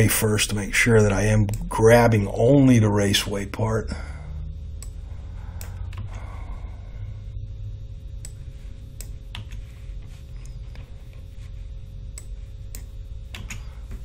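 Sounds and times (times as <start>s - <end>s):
steady low hum: 0.0s - 14.0s
computer mouse clicks: 4.8s - 5.0s, 12.2s - 13.7s.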